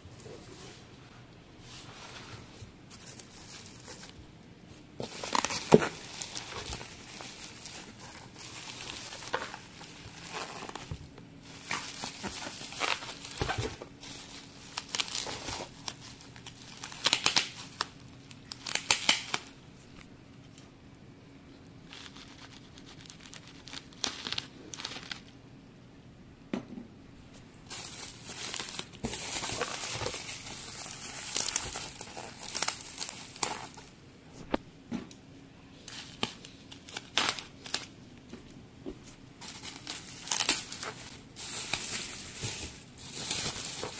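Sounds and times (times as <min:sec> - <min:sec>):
bubble wrap crinkling: 0:01.6 - 0:04.2, 0:05.0 - 0:20.1, 0:21.8 - 0:25.4, 0:27.6 - 0:34.6, 0:35.8 - 0:38.0, 0:39.0 - 0:43.9.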